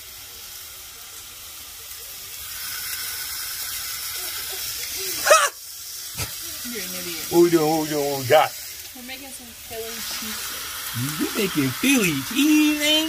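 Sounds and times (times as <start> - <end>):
steady hiss: 0.0 - 13.0
loud voice exclamation: 11.0 - 13.0.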